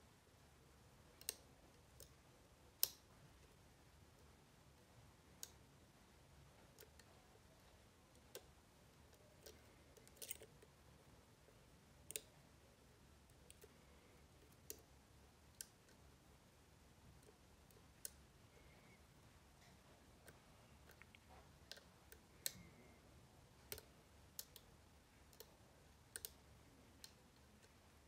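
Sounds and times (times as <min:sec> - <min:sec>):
faint metallic lock pick clicks: 0:09.1 - 0:10.7.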